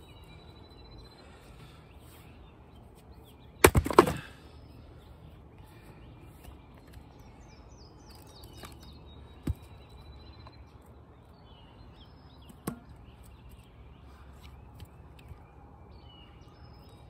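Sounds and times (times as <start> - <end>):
songbirds chirping: 0.0 - 17.0
wood splitting knocks: 3.6 - 4.3.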